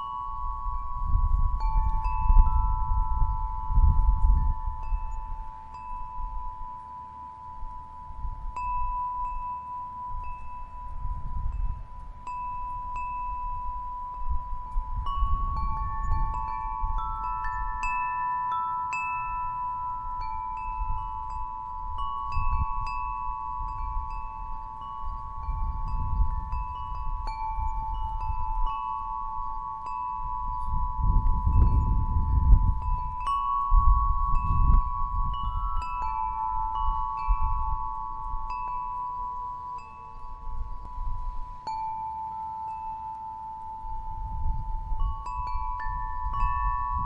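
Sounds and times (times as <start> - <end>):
wind chimes ringing: 0.0 - 47.0.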